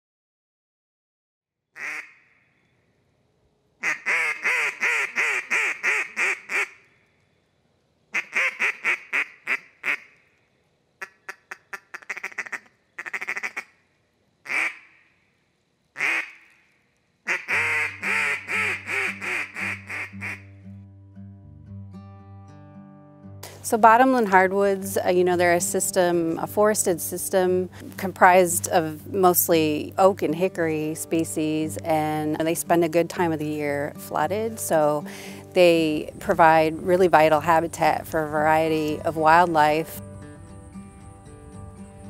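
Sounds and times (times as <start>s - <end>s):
duck quacking: 1.8s - 2.3s, 3.8s - 6.8s, 8.1s - 10.2s, 11.0s - 13.8s, 14.4s - 15.0s, 16.0s - 16.5s, 17.3s - 20.5s
acoustic guitar music: 17.5s - 42.0s.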